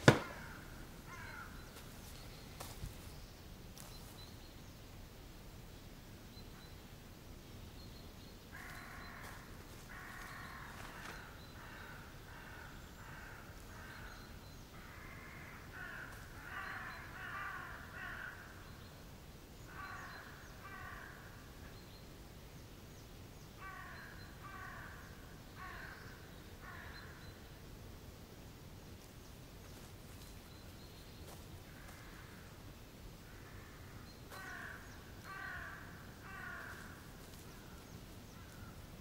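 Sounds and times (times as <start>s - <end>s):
crows cawing: 0.0s - 1.6s, 8.5s - 14.2s, 14.8s - 18.6s, 19.7s - 21.5s, 23.6s - 27.2s, 31.7s - 32.5s, 33.3s - 37.8s, 38.4s - 38.8s.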